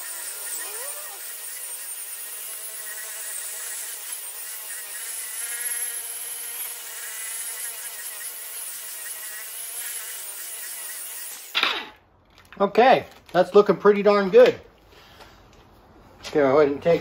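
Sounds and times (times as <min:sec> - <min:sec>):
electric polisher motor whine: 0:00.0 - 0:11.5.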